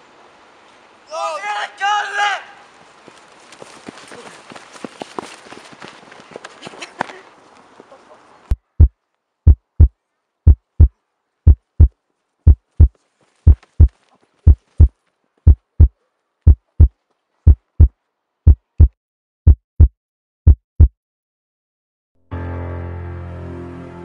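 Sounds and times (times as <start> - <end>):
heartbeat thumps: 8.5 - 21.0.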